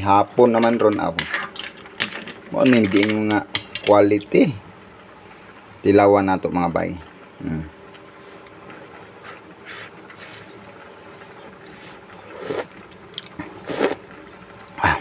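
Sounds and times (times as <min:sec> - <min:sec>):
pot boiling and bubbling: 0:00.0 - 0:15.0
person slurping broth: 0:12.3 - 0:12.7, 0:13.6 - 0:14.0.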